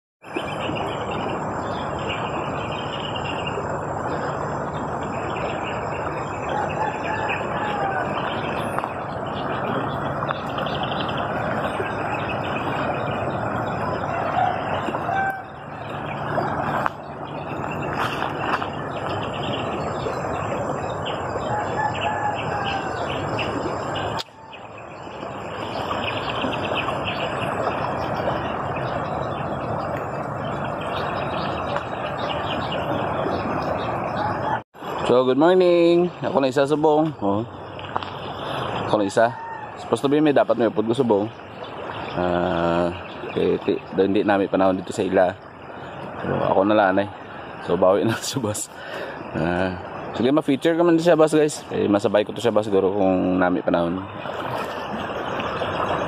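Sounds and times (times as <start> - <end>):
birds chirping: 0.2 - 56.0
outdoor background rush: 0.2 - 56.0
roosters crowing: 6.4 - 8.7, 13.8 - 16.6, 21.2 - 24.8, 34.1 - 34.6, 38.9 - 40.3.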